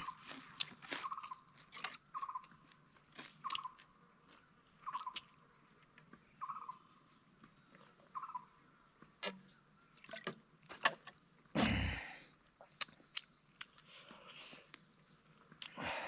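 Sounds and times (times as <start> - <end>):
man chewing with wet smacks: 0.0 - 6.3, 12.6 - 15.8.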